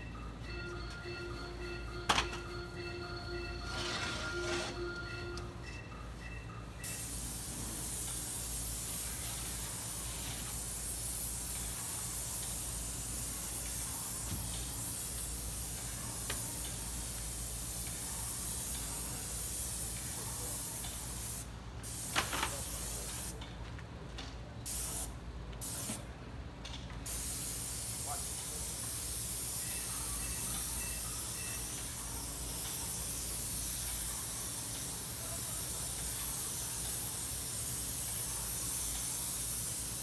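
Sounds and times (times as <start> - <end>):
paint sprayer hissing: 6.8 - 23.4, 27.0 - 40.0.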